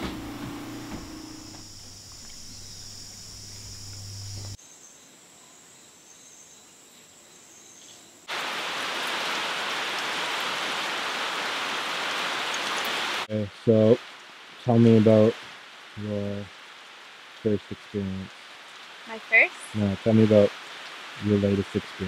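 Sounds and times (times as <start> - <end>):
low hum: 0.0 - 4.6
faint high insect calls: 0.4 - 8.6
heavy rain: 8.3 - 22.0.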